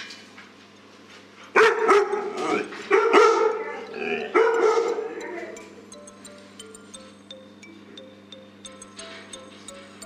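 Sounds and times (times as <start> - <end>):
dog barking: 1.6 - 5.1.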